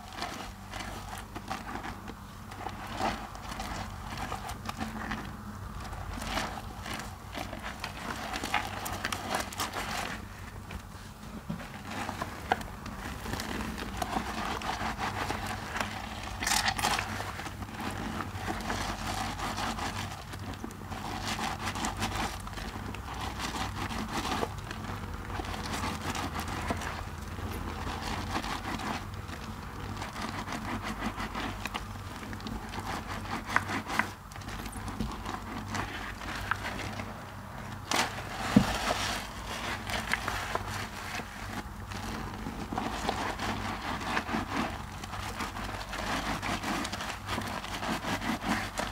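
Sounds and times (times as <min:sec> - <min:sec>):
soap lather squishing: 0:11.7 - 0:48.9.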